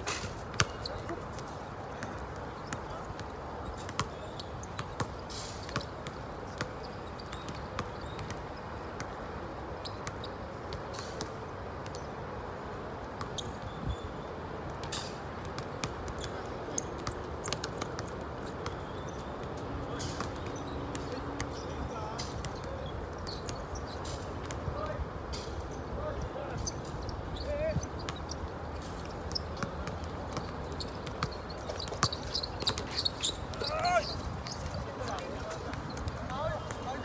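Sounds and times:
basketballs bouncing on a court: 0.5s - 8.4s, 14.8s - 25.0s, 26.6s - 37.0s.

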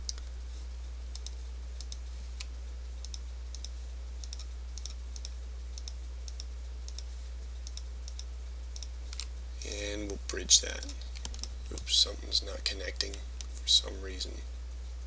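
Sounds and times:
low electrical hum: 0.0s - 15.0s
computer mouse clicking: 1.1s - 9.8s.

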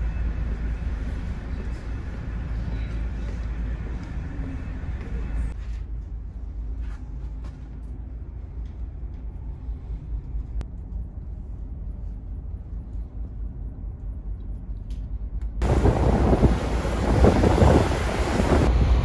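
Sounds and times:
ferry engines rumbling: 0.0s - 5.7s, 15.6s - 19.0s.

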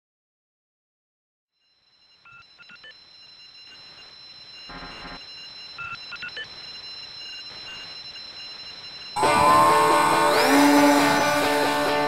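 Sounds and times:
flurries of beeps: 1.8s - 12.0s
high electronic tones: 2.4s - 12.0s
buzzy burst: 9.2s - 12.0s.

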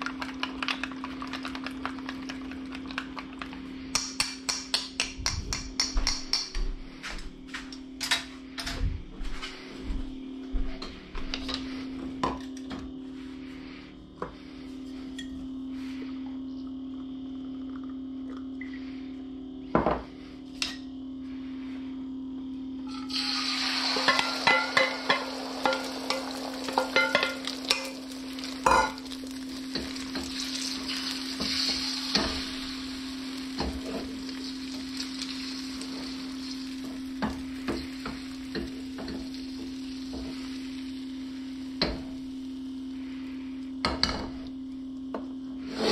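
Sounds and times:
eggs sizzling in oil: 0.0s - 4.7s, 22.9s - 44.2s
spatula scraping wok: 45.6s - 45.9s.

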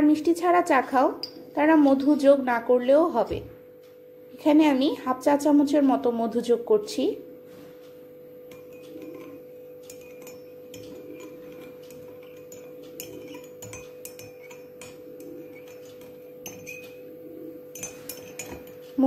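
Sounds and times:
steady hum: 0.0s - 19.0s
spoon clinking in ceramic cup: 8.5s - 17.1s, 17.7s - 18.9s.

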